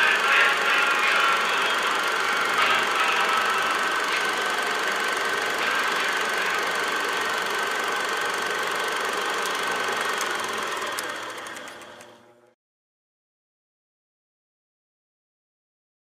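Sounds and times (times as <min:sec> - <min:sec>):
film projector mechanism whirring: 0:00.0 - 0:12.6.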